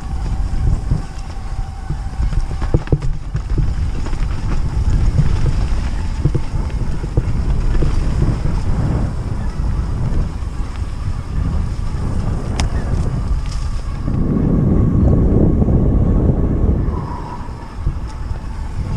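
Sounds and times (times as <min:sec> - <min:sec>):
bike knocks and rattles: 0:00.0 - 0:14.2
low rumble: 0:00.0 - 0:18.9
wind buffeting microphone: 0:00.0 - 0:18.9.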